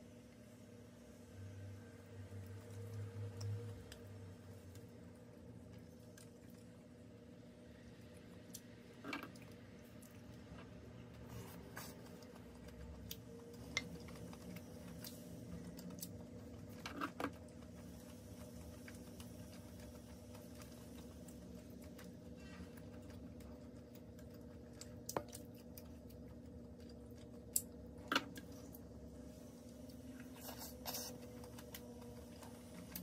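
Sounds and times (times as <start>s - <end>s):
faint steady hum: 0.0s - 33.0s.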